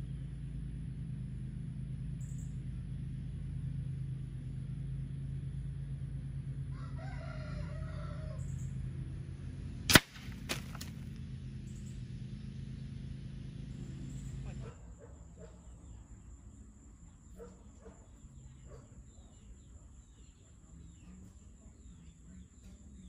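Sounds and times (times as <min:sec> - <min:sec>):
fan humming: 0:00.0 - 0:23.0
rooster crowing: 0:06.6 - 0:08.7
air rifle shot crack: 0:09.9 - 0:11.0.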